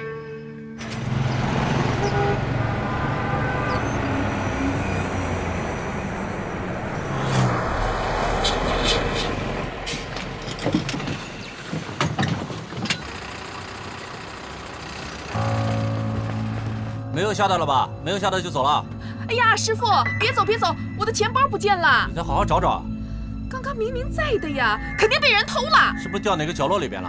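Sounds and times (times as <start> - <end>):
motorbike and vehicle engines passing: 0.8 - 10.4, 13.1 - 17.0
minibus engine rumble: 0.8 - 27.0.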